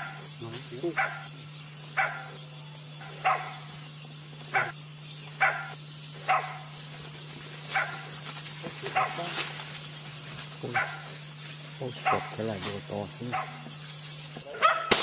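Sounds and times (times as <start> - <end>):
dog barking: 0.0 - 0.3, 1.0 - 1.3, 2.0 - 2.4, 3.1 - 3.7, 4.5 - 4.8, 5.4 - 6.7, 7.7 - 8.1, 8.9 - 9.3, 10.7 - 11.1, 12.0 - 12.5, 13.3 - 13.6, 14.5 - 14.9
steady low hum: 0.0 - 15.0.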